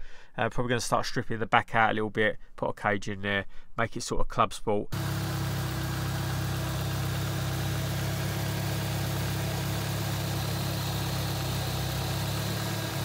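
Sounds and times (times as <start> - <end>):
engine idling: 5.0 - 13.0
turbocharger spinning: 5.0 - 13.0.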